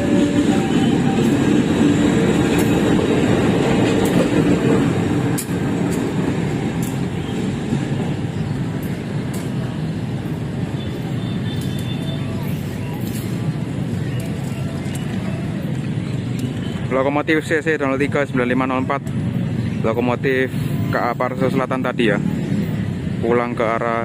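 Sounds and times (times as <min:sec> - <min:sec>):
wheels clanking on track: 0:00.0 - 0:10.8.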